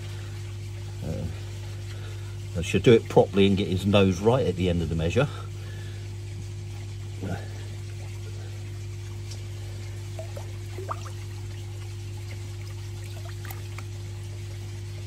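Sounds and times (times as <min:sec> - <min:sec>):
water trickling: 0:00.0 - 0:15.0
low hum: 0:05.6 - 0:15.0
water drips: 0:08.9 - 0:14.5.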